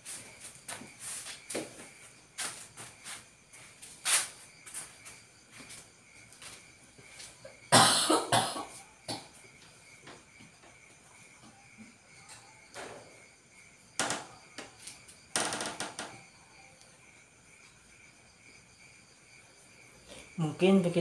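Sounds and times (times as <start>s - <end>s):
person coughing: 7.7s - 9.3s.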